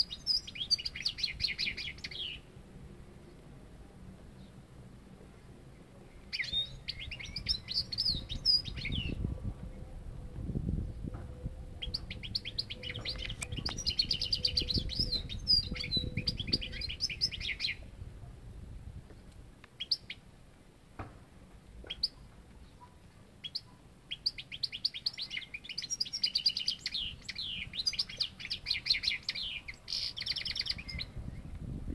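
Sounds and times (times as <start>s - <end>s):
finch twittering: 11.8s - 17.8s, 23.4s - 31.2s.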